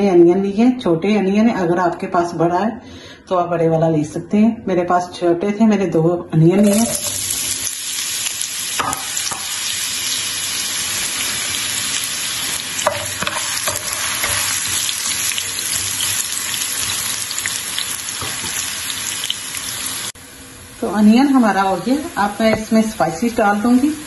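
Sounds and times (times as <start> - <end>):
onions sizzling in oil: 6.6 - 24.0
spatula scraping pan: 12.8 - 17.1.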